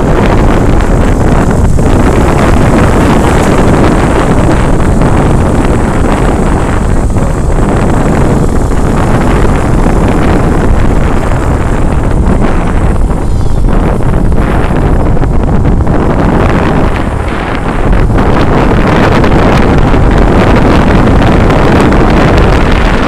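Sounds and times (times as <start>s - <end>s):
small motorcycle engines running: 0.0s - 23.0s
wind rushing over microphone: 0.0s - 23.0s.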